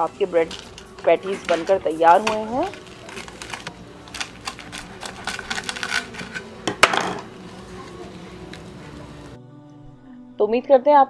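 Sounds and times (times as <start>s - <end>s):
knife cutting crispy crust: 0.4s - 9.0s.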